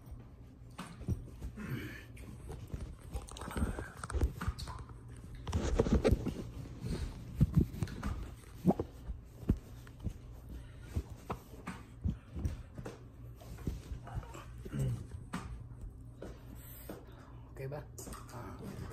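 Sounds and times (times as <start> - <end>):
chewing and mouth noises: 2.1 - 5.6.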